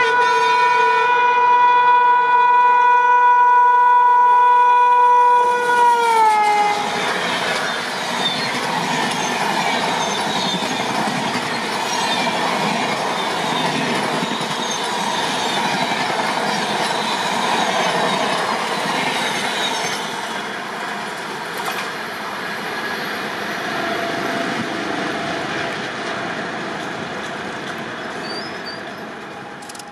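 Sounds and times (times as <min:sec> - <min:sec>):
locomotive horn: 0:00.0 - 0:07.1
train coaches rushing past: 0:05.5 - 0:29.9.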